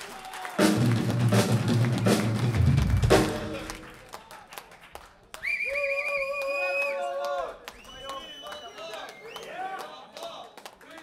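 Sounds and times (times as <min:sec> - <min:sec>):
rock band hitting accents: 0:00.6 - 0:03.8.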